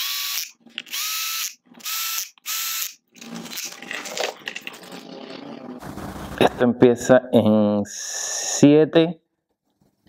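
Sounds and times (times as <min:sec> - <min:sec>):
cordless power driver whining: 0:00.0 - 0:03.0.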